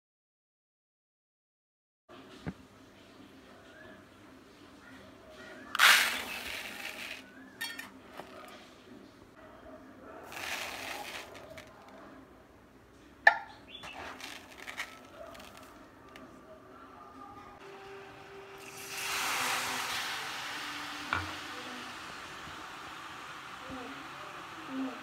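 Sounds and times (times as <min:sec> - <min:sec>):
rice pouring into plastic bowl: 0:05.8 - 0:07.2, 0:10.3 - 0:11.9, 0:14.0 - 0:15.7
hand stirring rice grains: 0:05.8 - 0:08.5, 0:10.3 - 0:12.0, 0:13.8 - 0:16.2.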